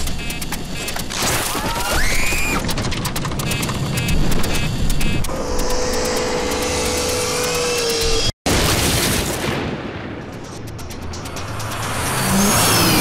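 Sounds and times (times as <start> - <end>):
rising whine: 4.3 - 8.3.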